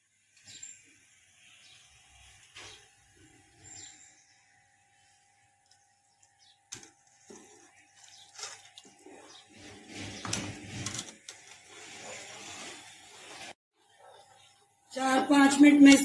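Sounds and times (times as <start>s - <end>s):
milk swishing in pot: 6.1s - 15.2s.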